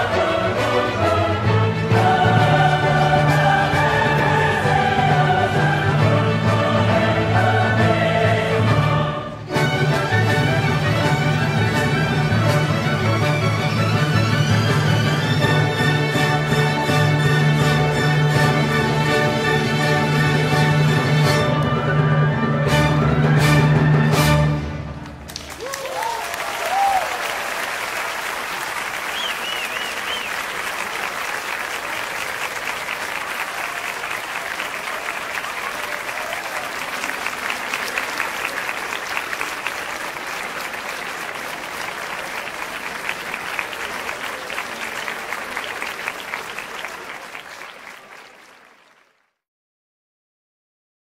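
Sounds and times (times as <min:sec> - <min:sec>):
crowd applauding and cheering: 0:24.9 - 0:49.4
shouts and whistles: 0:29.1 - 0:30.4.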